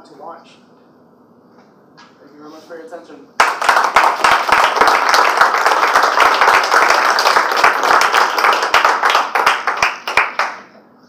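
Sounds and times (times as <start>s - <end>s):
audience applauding: 3.4s - 10.7s.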